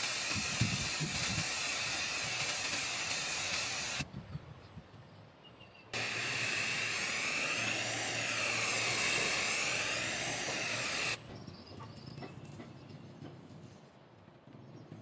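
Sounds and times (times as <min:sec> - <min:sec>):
aerosol spray can hissing: 0:00.0 - 0:04.0, 0:06.0 - 0:11.2.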